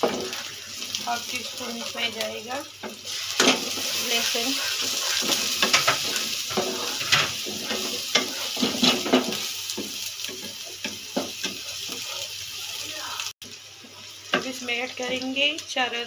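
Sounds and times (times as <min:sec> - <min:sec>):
onions sizzling in oil: 0:00.0 - 0:16.0
spatula scraping pan: 0:02.8 - 0:12.5
spatula knocking against pan: 0:05.2 - 0:12.0.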